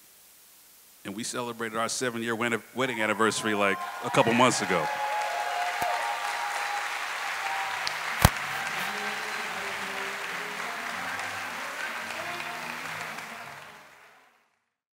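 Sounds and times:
audience applauding: 3.0 - 14.6.

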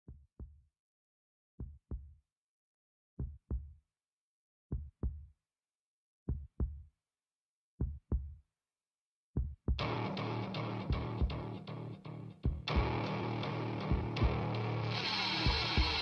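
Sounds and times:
deep heartbeat thumps: 12.5 - 13.0, 13.9 - 14.4.

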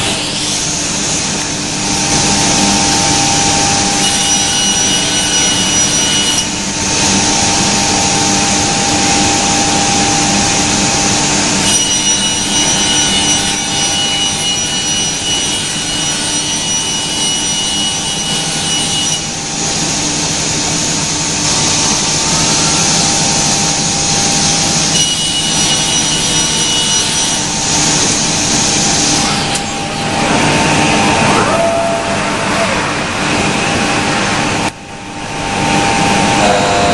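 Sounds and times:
machine cutting wood: 0.0 - 36.9
woodworking machine whine: 0.0 - 36.9.

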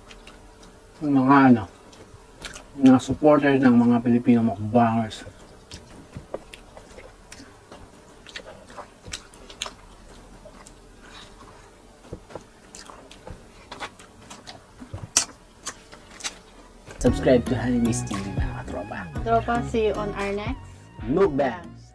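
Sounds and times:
wet smacks and clicks: 0.0 - 0.8, 1.9 - 3.0, 5.4 - 11.4, 12.1 - 17.1
chewing and biting orange: 5.6 - 16.8.

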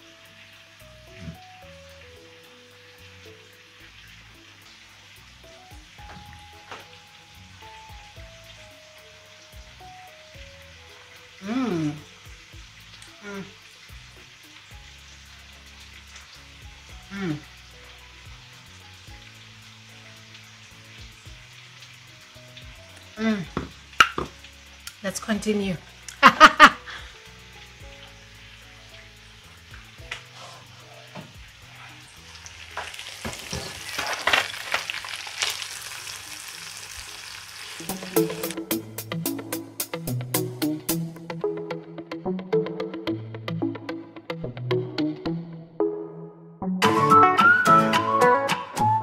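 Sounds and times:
food sizzling in a pan: 0.0 - 41.1
utensil scraping a pan: 32.7 - 35.6
background music with a beat: 37.9 - 49.0.

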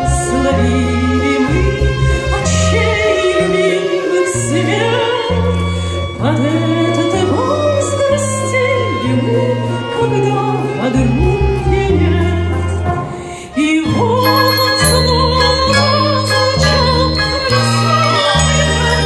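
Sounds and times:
woman singing into a microphone: 0.0 - 19.0
instrumental music with bass line: 14.0 - 19.0.

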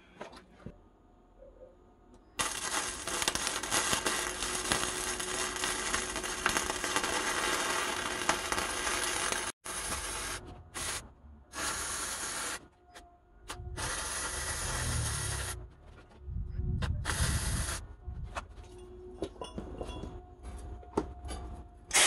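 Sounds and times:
welding arc crackling and hissing: 2.4 - 11.0, 11.6 - 12.6, 13.8 - 15.6, 17.1 - 17.8.

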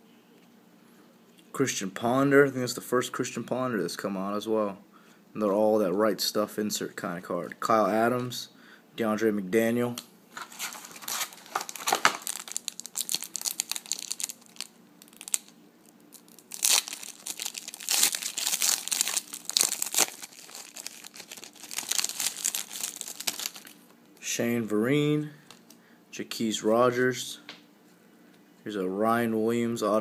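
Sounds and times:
foil wrapper crinkling and tearing: 10.4 - 23.9.

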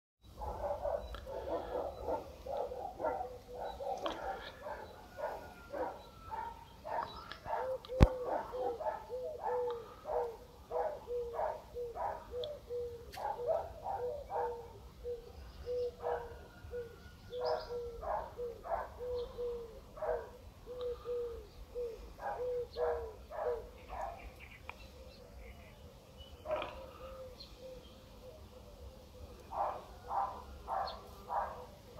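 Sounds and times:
animal calling: 0.4 - 31.9.

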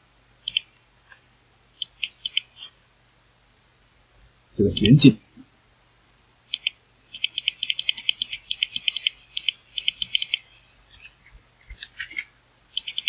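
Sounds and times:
computer input device clicks: 0.5 - 0.7, 1.8 - 2.5, 4.6 - 5.1, 6.5 - 10.6, 12.8 - 13.0.

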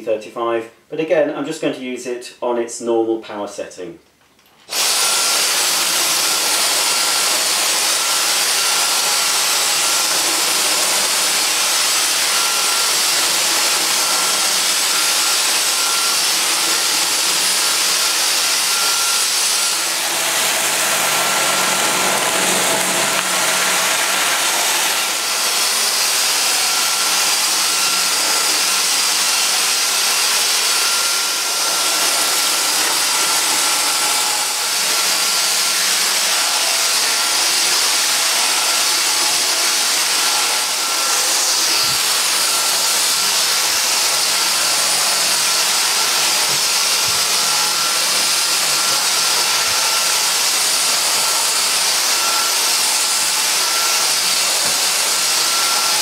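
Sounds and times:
stick vacuum running: 4.6 - 56.0.

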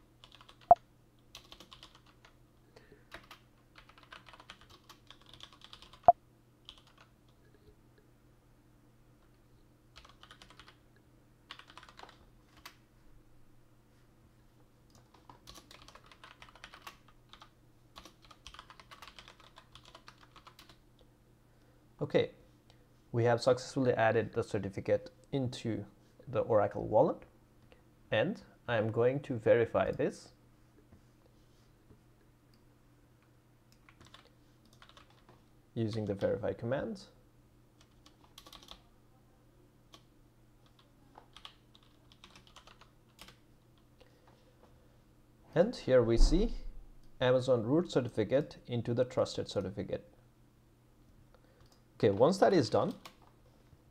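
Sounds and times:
faint keyboard typing: 0.1 - 2.4, 3.0 - 7.8, 9.2 - 10.8, 11.5 - 12.8, 14.9 - 21.1, 33.2 - 36.4, 37.8 - 38.9, 39.9 - 44.8, 51.3 - 53.8.

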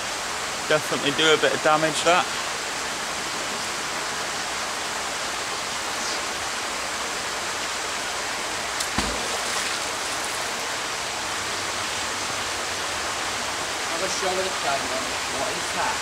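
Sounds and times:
running water rushing: 0.0 - 16.0
splash into water: 8.8 - 10.5.

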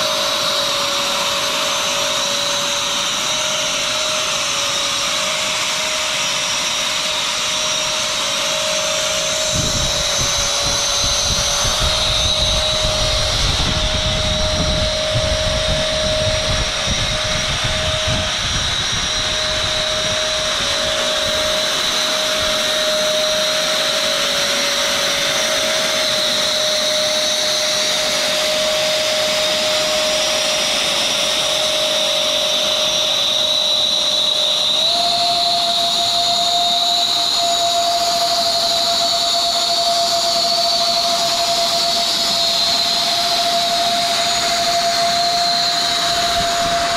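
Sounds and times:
robot whine over rushing noise: 0.0 - 46.9.

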